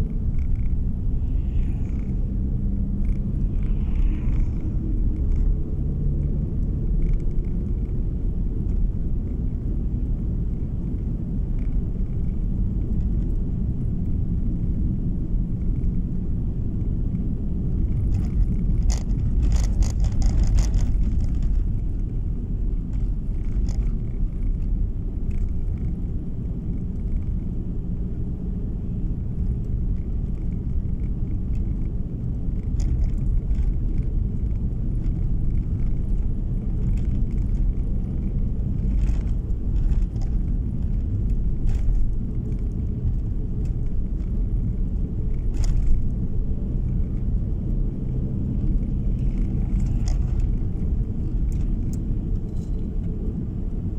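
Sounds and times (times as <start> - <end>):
car tyres and engine rumble: 0.0 - 53.9
clicks and rattles: 17.9 - 21.7.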